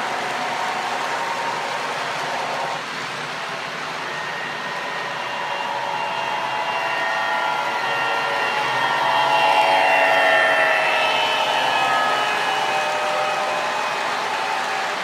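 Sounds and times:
model train motor whirring: 4.0s - 13.6s.

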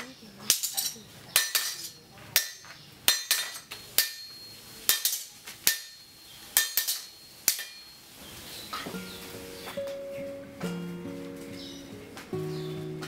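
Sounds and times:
hammer striking metal on anvil: 0.0s - 8.0s.

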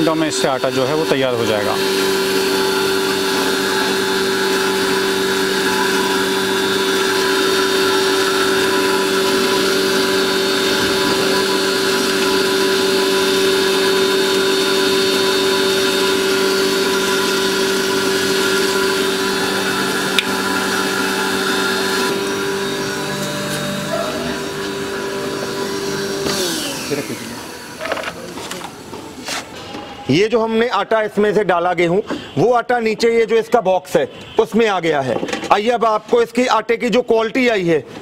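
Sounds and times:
flour mill grinding: 0.0s - 28.8s.

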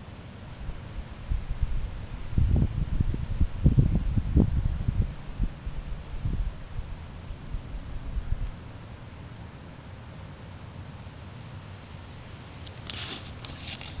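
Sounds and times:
steady high-pitched whine: 0.0s - 14.0s
short raspy bursts: 12.8s - 14.0s.

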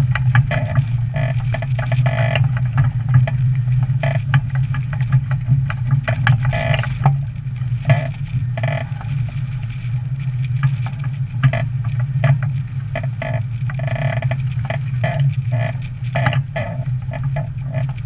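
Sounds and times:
rigging creaking and knocking: 0.0s - 5.1s, 5.9s - 7.2s, 7.8s - 9.1s, 11.4s - 18.0s
wind rumble on microphone: 0.0s - 18.0s.

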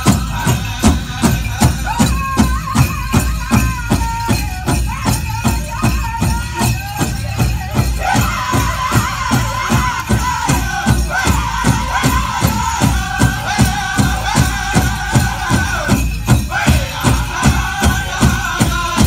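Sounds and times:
big drum beating: 0.0s - 19.0s
men singing: 0.0s - 19.0s.

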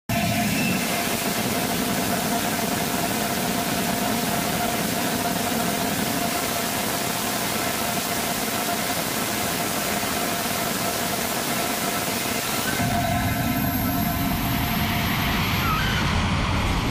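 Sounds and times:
rocket engine roaring: 12.4s - 16.9s.

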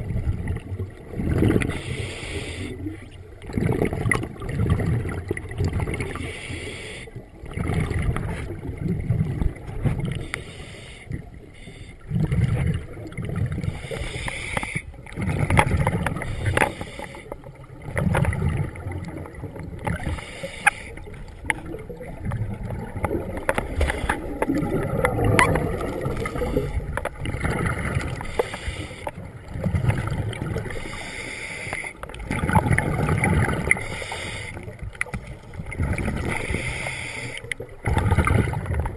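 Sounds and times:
exhaled bubbles rumbling: 0.0s - 6.4s, 7.2s - 10.3s, 11.1s - 31.1s, 31.9s - 38.9s
diver breathing through regulator: 1.5s - 3.0s, 6.2s - 7.2s, 10.0s - 12.1s, 13.6s - 15.0s, 16.1s - 17.5s, 19.9s - 21.2s, 23.6s - 24.7s, 28.1s - 29.3s, 30.5s - 32.0s, 33.6s - 34.8s, 36.2s - 37.6s.

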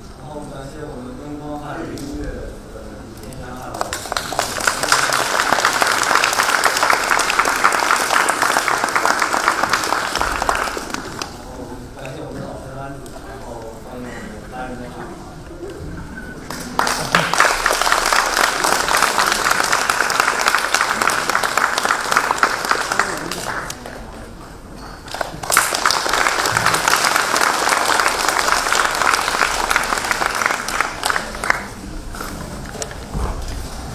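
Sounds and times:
audience applauding: 3.7s - 11.5s, 16.4s - 24.2s, 25.0s - 33.0s.

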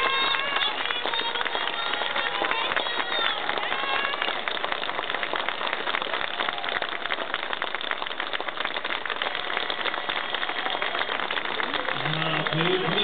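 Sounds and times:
crowd applauding: 0.0s - 13.0s.

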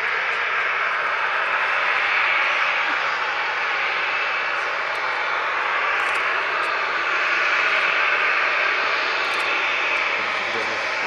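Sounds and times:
jet engine hiss while taxiing: 0.0s - 11.0s.

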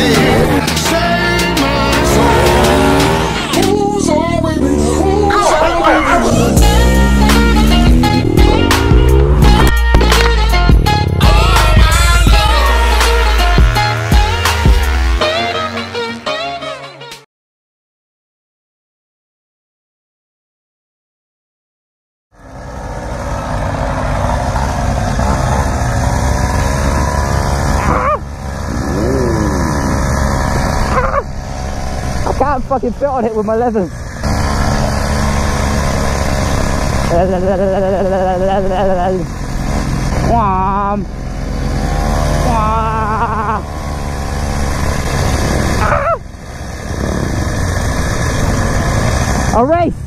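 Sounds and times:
mini moto engine running: 22.4s - 49.6s
wind rumble on microphone: 46.7s - 50.0s.

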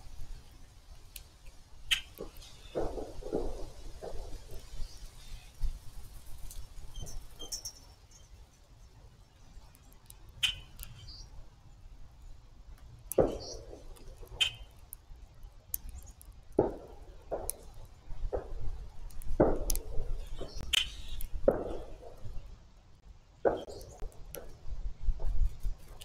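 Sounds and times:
wind rumble on microphone: 23.4s - 26.0s.

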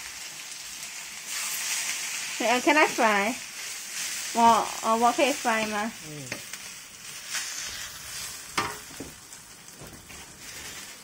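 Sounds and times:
noodles sizzling in a wok: 0.0s - 11.0s
wooden spatula scraping a wok: 1.2s - 2.2s, 5.2s - 9.0s, 10.0s - 11.0s.

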